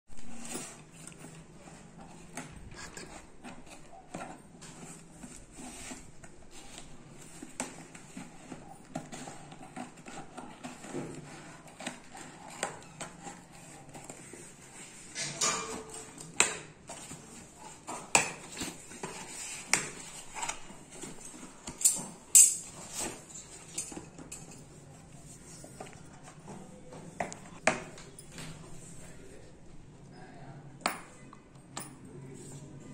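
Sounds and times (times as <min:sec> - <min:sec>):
cardboard being handled: 0:00.2 - 0:15.1.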